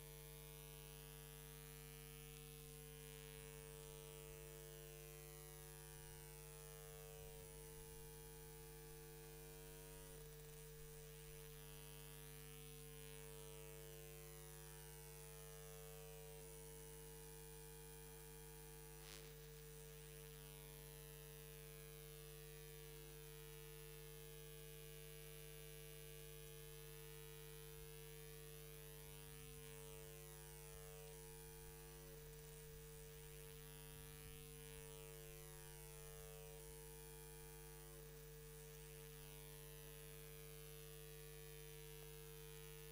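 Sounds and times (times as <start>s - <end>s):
electrical mains hum: 0.0s - 17.5s, 27.5s - 41.0s.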